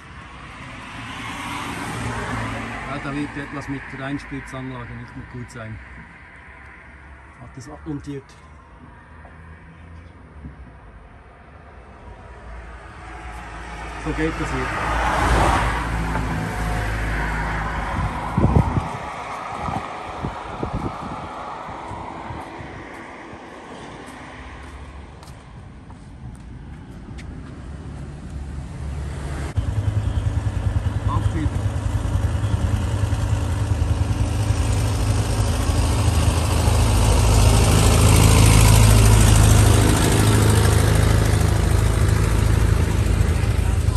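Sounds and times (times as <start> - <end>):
tyre noise on road: 11.9 - 43.9
wind noise on microphone: 17.6 - 23.6
diesel truck driving past: 27.6 - 43.9
engine running: 27.9 - 43.9.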